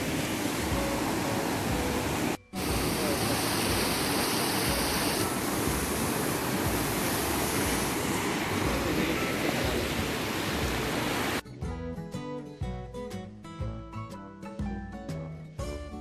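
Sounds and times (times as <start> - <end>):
stream water rushing: 0.0 - 11.4
acoustic guitar music: 10.7 - 16.0.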